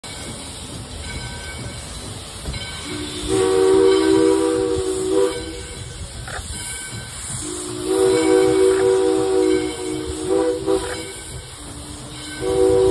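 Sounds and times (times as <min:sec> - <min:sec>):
steady train rumble: 0:00.0 - 0:12.9
steam whistle chord: 0:02.8 - 0:05.8, 0:07.4 - 0:12.9.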